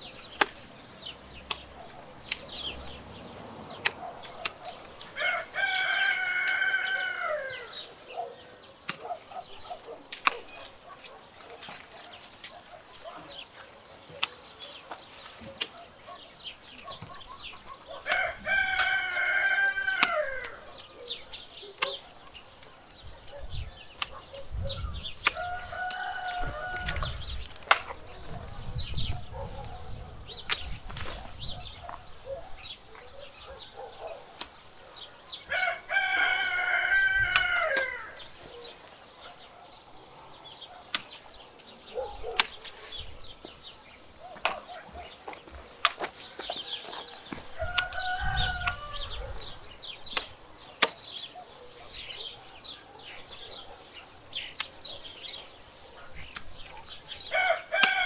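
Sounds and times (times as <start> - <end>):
pruning clicks: 0.0 - 7.9, 8.7 - 24.5, 25.1 - 28.4, 30.4 - 32.0, 32.9 - 39.5, 40.7 - 51.4, 54.0 - 58.0
rooster crowing: 5.2 - 7.8, 18.1 - 20.6, 25.4 - 27.1, 35.5 - 38.2, 46.6 - 49.2, 57.3 - 58.0.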